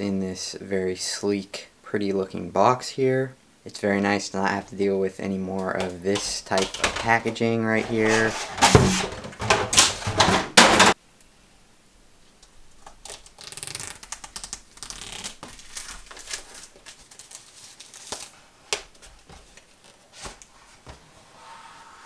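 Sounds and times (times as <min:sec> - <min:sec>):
cardboard box rustling and scraping: 0:07.8 - 0:10.6
plastic packaging crackling: 0:12.7 - 0:20.5.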